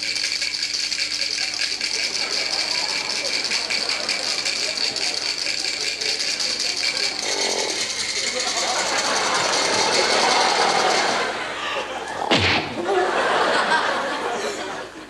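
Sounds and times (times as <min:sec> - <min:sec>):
dice rattling in a shaker cup: 0:00.0 - 0:11.2.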